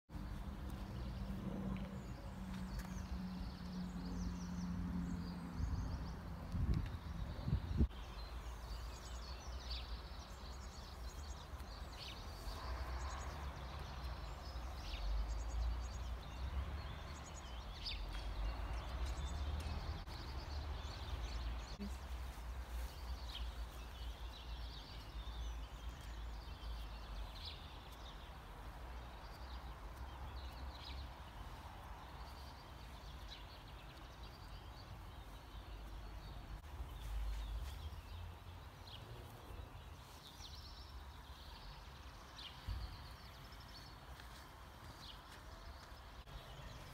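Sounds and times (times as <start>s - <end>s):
small birds chirping: 0.1s - 46.9s
wind rumble on microphone: 0.9s - 8.0s.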